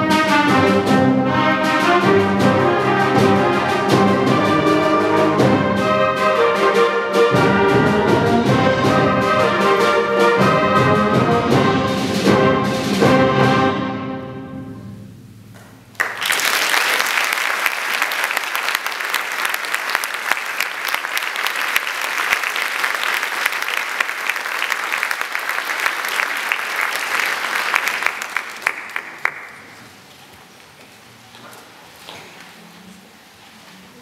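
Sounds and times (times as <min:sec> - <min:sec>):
audience clapping: 0:15.6 - 0:30.1.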